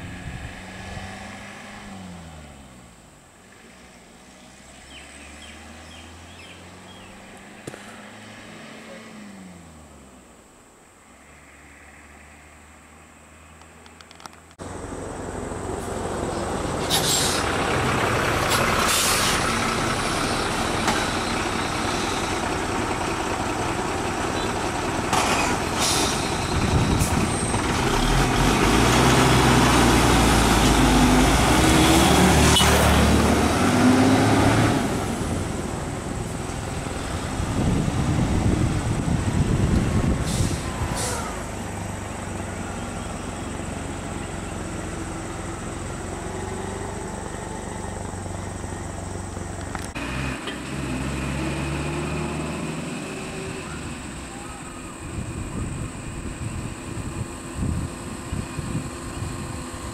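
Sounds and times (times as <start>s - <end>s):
lorries passing: 0.0s - 59.9s
air brakes hissing: 16.8s - 17.6s, 18.4s - 19.6s, 25.4s - 27.3s, 40.2s - 41.4s.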